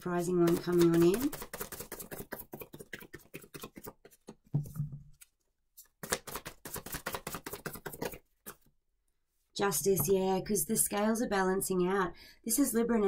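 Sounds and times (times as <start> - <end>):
cards being shuffled: 0.2 - 4.5, 5.1 - 8.7.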